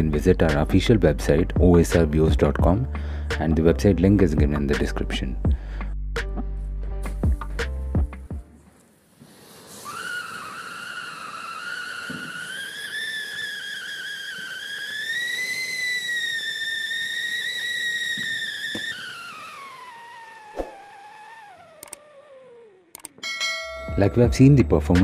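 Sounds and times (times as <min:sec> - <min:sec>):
small firework pops: 0:09.2 - 0:19.6
firework siren whistle: 0:09.4 - 0:22.8.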